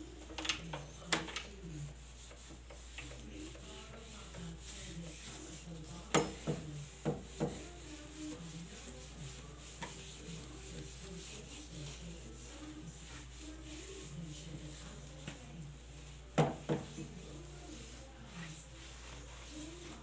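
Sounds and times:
cloth scrubbing wooden door: 0:00.0 - 0:20.0.

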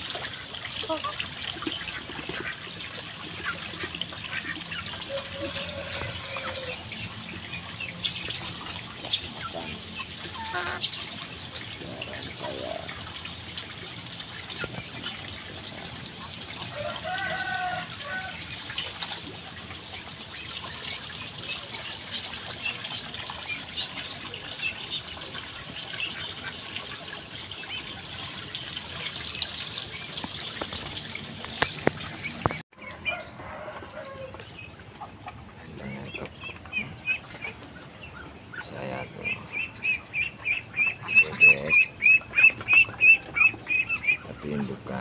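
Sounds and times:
water trickling: 0:00.0 - 0:45.0.

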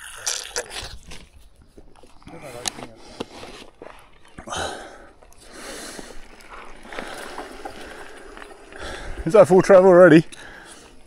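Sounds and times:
bike tyres rushing over dirt: 0:02.9 - 0:11.0.

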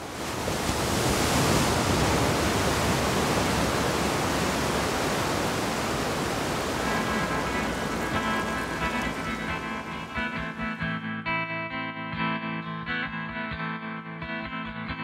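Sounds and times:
rushing water: 0:00.0 - 0:10.9.

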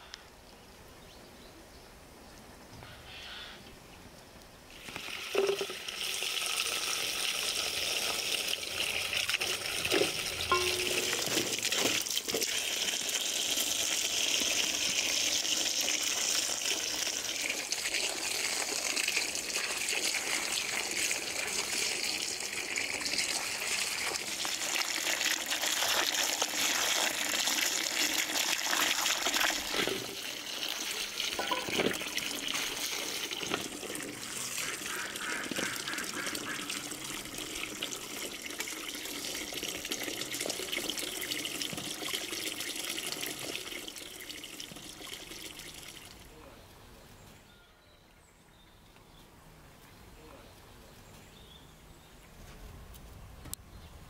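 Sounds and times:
water pouring and splashing: 0:04.7 - 0:46.3
light knocks and clinks: 0:31.4 - 0:31.9.

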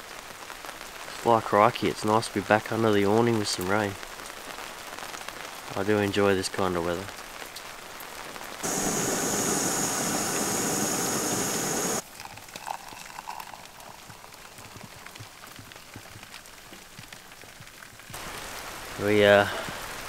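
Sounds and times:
rain pattering: 0:00.0 - 0:20.0
camping stove hissing: 0:08.6 - 0:12.0
water poured into steel mug: 0:12.0 - 0:14.1.

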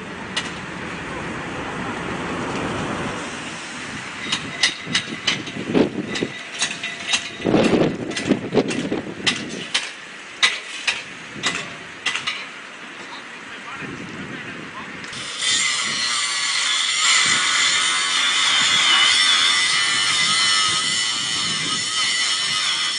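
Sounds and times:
rushing noise: 0:00.0 - 0:09.1.

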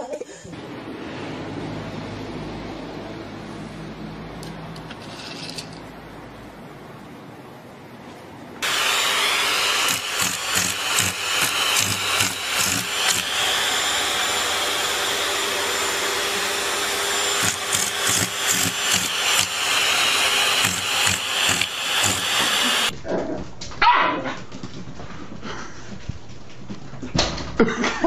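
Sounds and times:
small motor running with airflow: 0:08.6 - 0:22.9.

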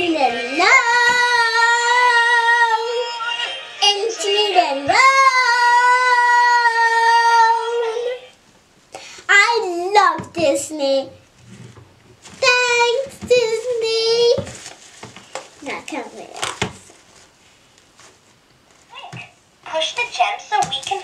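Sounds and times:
child singing high notes: 0:00.0 - 0:08.2.

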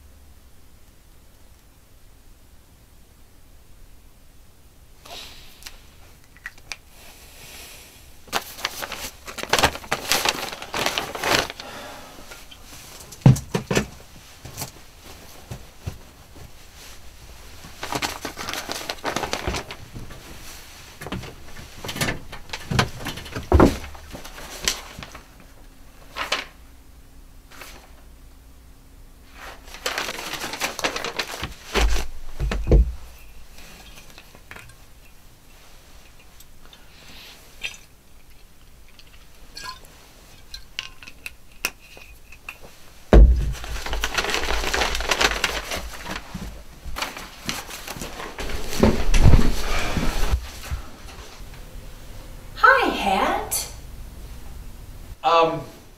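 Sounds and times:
plastic bag crinkling: 0:08.3 - 0:13.3, 0:14.4 - 0:25.3, 0:29.3 - 0:35.0, 0:42.0 - 0:50.4
objects knocking and clinking: 0:37.6 - 0:42.6.

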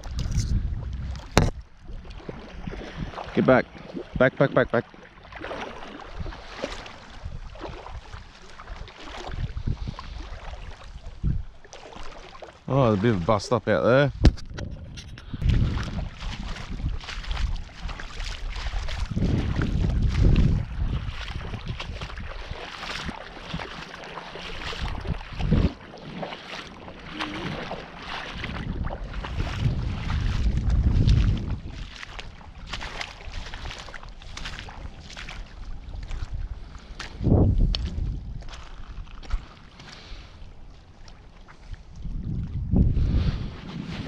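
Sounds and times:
wind buffeting microphone: 0:00.0 - 0:04.4, 0:06.0 - 0:11.6, 0:12.8 - 0:23.8, 0:24.5 - 0:40.2, 0:41.7 - 0:44.0
water splashing around wading legs: 0:00.0 - 0:13.6, 0:15.4 - 0:42.7.

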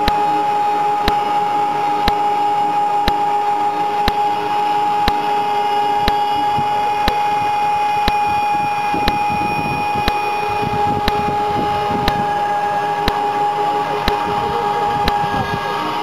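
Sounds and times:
sharp ticks: 0:02.0 - 0:02.2, 0:07.0 - 0:07.4, 0:08.9 - 0:10.3, 0:10.9 - 0:12.3, 0:14.0 - 0:14.3.

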